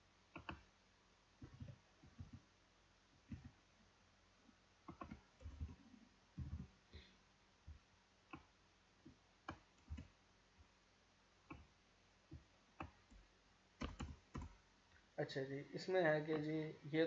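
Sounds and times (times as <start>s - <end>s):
keyboard and mouse clicks: 0.3s - 0.7s, 1.4s - 2.5s, 3.2s - 3.6s, 4.8s - 5.8s, 6.4s - 6.7s, 9.4s - 10.2s, 11.4s - 11.7s, 12.3s - 13.2s, 13.8s - 14.6s.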